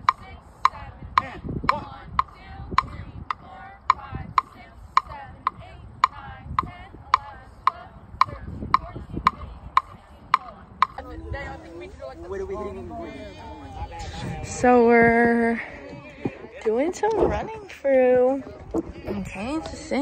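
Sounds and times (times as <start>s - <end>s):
metronome clicking: 1.7s - 11.0s.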